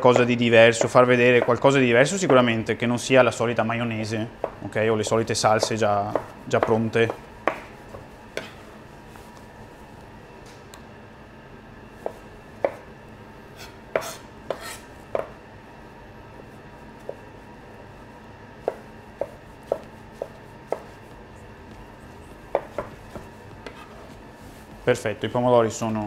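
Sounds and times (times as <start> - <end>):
knife chopping on cutting board: 4.4 - 4.6, 5.5 - 8.6, 12.0 - 12.9, 13.5 - 15.4, 18.6 - 21.2, 22.2 - 24.1.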